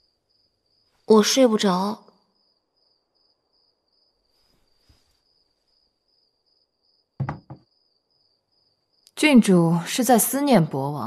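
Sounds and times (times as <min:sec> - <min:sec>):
crickets trilling: 0:00.0 - 0:10.8
tray knocking on table: 0:07.2 - 0:07.7.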